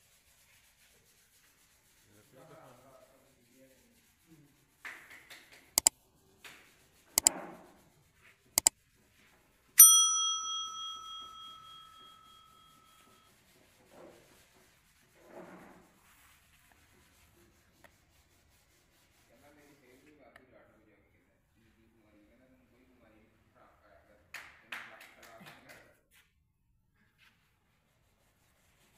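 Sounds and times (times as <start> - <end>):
bell ding: 9.8 - 13.0.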